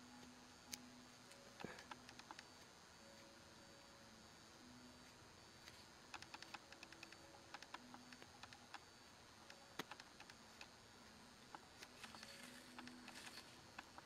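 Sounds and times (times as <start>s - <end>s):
woodburning pen clicking on wood: 1.6s - 2.7s, 5.6s - 10.8s, 11.4s - 14.0s.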